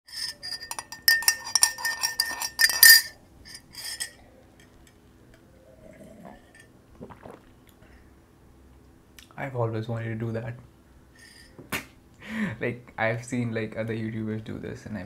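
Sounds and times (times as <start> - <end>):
mug and steel dishes clinking: 0.1 - 4.8.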